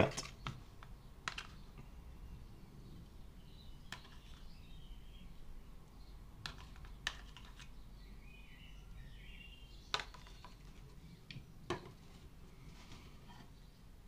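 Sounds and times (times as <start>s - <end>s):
faint bird chirps: 7.4s - 11.7s.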